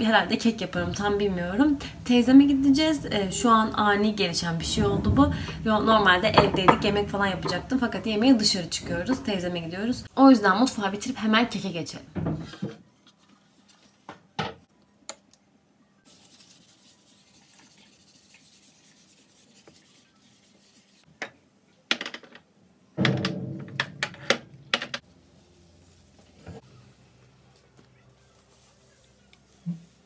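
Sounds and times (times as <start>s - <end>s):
clatter of kitchen items: 4.5s - 9.5s, 23.0s - 25.0s
cutting board knocking on counter: 6.4s - 7.7s
cloth rubbing on countertop: 16.1s - 21.1s, 27.6s - 30.0s.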